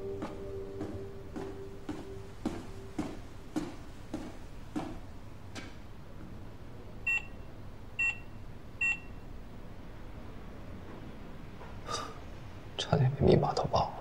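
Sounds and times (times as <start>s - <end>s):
keypad door lock beeps: 7.1s - 7.4s, 8.0s - 9.1s.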